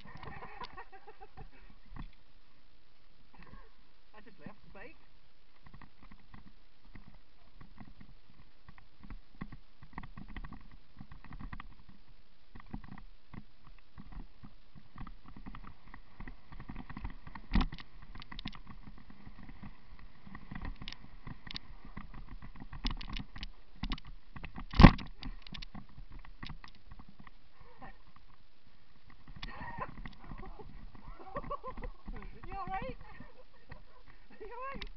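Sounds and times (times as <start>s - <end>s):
mountain bike rattling on dirt trail: 5.6s - 27.3s, 29.0s - 34.8s.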